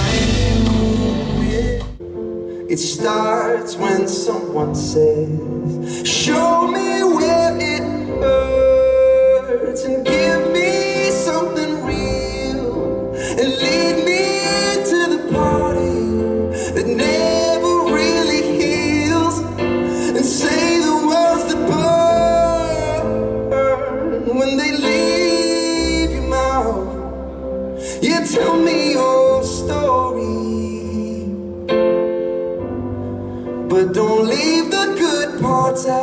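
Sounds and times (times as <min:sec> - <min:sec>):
man singing into microphone: 0:00.0 - 0:02.0, 0:02.6 - 0:31.7, 0:33.6 - 0:36.0
low bass: 0:00.0 - 0:02.3
piano chords: 0:00.0 - 0:36.0.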